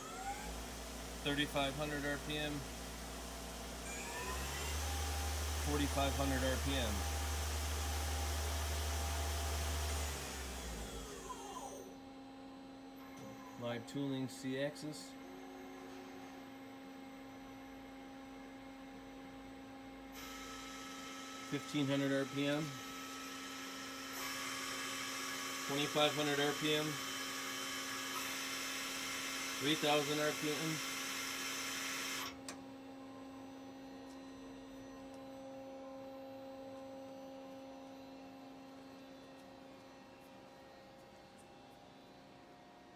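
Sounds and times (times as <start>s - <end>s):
lathe spindle whirring: 0.0s - 11.8s, 20.2s - 32.6s
steady machine hum: 0.0s - 42.9s.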